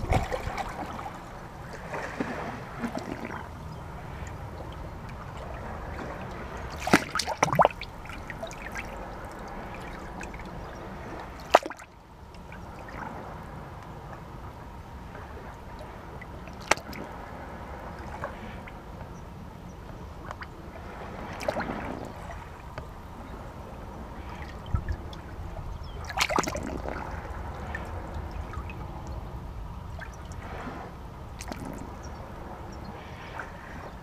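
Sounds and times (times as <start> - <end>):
low rumble: 0.0 - 6.8
seawater lapping in rocks: 0.0 - 13.4, 15.2 - 18.8, 20.2 - 29.1, 29.9 - 34.0
water splashes and drips: 5.9 - 10.5, 11.4 - 11.9, 26.0 - 28.8, 31.4 - 31.8.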